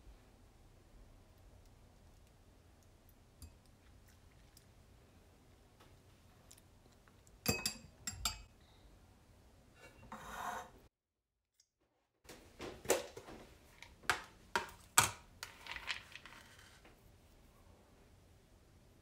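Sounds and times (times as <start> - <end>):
metal fork clinking on ceramic bowl: 7.4 - 8.5.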